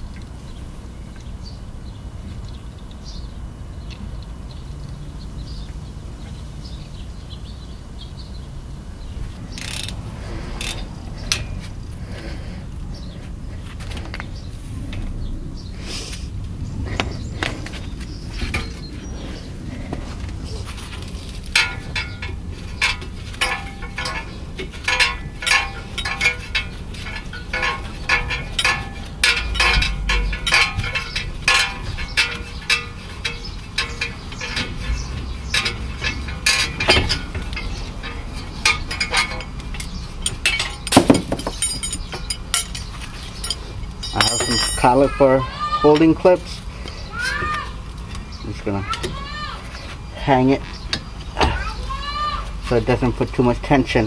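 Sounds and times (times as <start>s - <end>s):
steady low rumble: 0.0s - 45.2s
metallic clinks and clatters: 20.9s - 45.2s.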